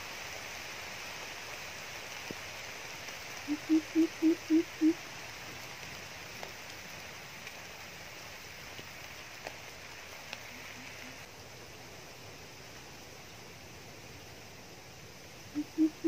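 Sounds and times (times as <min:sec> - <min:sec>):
steady outdoor hiss: 0:00.0 - 0:16.0
deep bird hoots: 0:03.5 - 0:05.0, 0:15.5 - 0:16.0.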